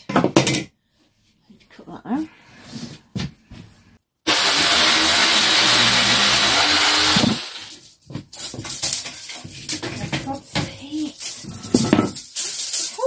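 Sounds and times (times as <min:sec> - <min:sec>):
electric jigsaw sawing wood: 0:04.3 - 0:07.8.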